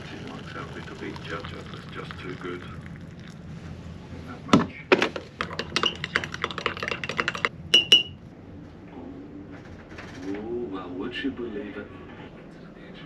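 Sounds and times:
sharp ringing taps: 7.7s - 8.2s.

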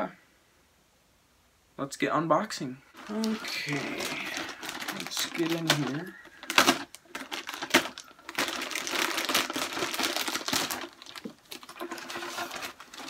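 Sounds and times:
plastic bag crinkling: 3.0s - 13.0s.

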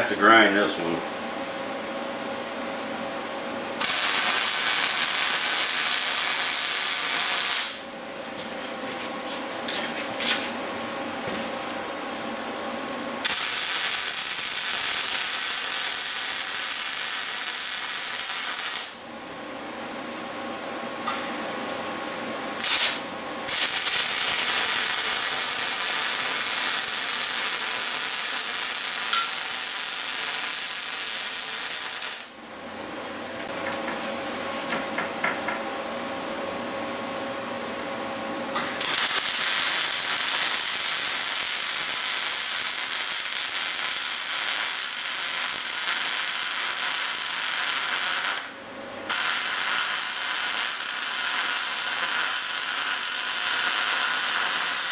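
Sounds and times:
welding arc crackling: 3.8s - 7.8s, 13.2s - 19.0s, 21.1s - 32.4s, 38.6s - 54.9s.

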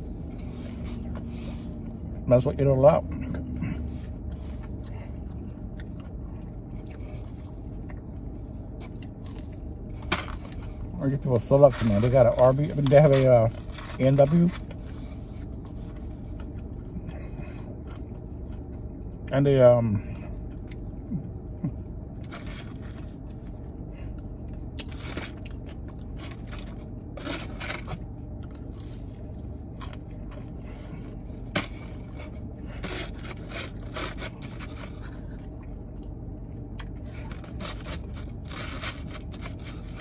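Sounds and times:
chewing and crunching food: 0.0s - 40.0s
steady low hum: 0.0s - 40.0s
plastic fork scraping a box: 31.6s - 35.4s, 37.1s - 40.0s.

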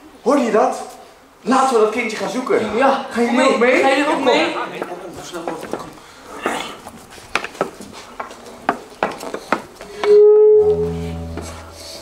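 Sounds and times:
footsteps on pavement: 4.8s - 6.0s, 6.8s - 10.0s
loud steady tone: 10.0s - 12.0s
low held chord: 10.1s - 12.0s.

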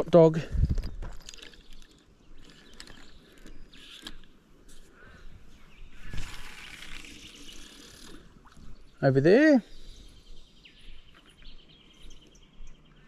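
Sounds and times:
fishing reel clicks and rattles: 6.2s - 8.2s.

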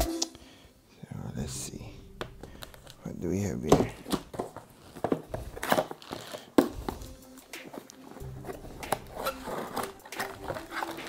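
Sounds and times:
plastic wrap rustling: 2.4s - 11.0s
cardboard box being moved: 8.1s - 11.0s.

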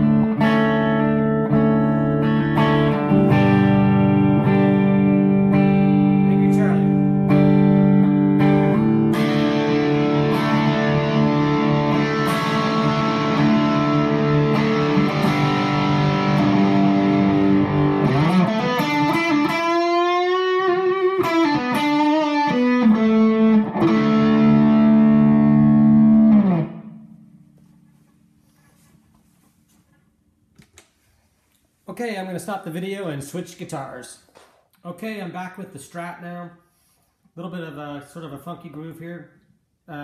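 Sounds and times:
distorted electric guitar: 0.0s - 27.7s.

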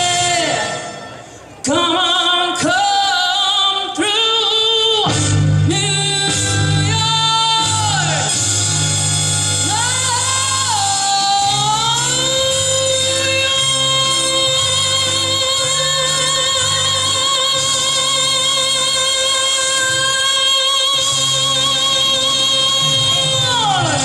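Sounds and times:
woman singing into microphone: 1.6s - 8.2s, 9.6s - 24.0s
steady bass line: 5.1s - 24.0s.

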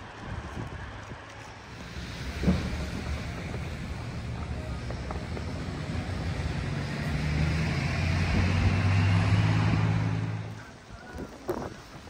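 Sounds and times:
vehicle engine running: 1.7s - 11.3s.

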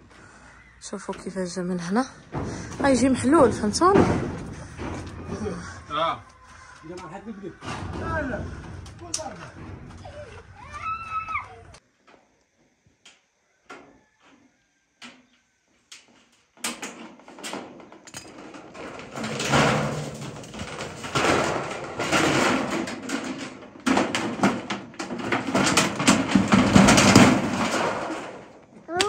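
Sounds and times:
metal roofing sheets rattling: 1.3s - 11.0s, 15.9s - 29.0s.

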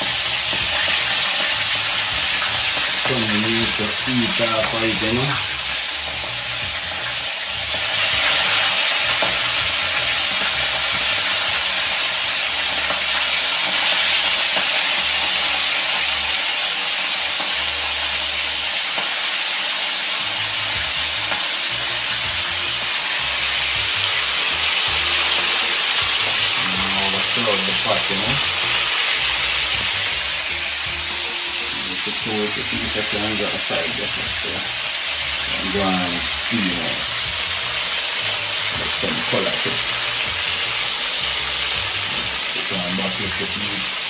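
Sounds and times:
meat sizzling in hot oil: 0.0s - 44.0s.

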